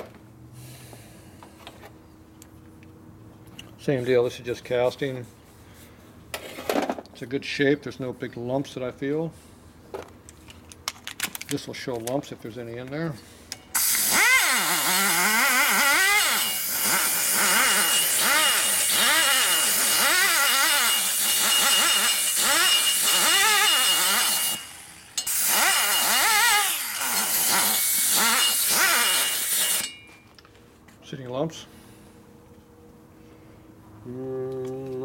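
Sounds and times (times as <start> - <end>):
die grinder whining on metal: 13.8 - 30.0.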